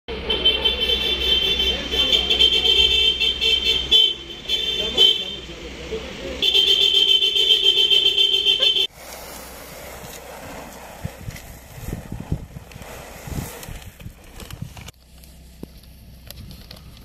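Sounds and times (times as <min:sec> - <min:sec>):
vehicle horns blasting: 0:00.1 - 0:08.9.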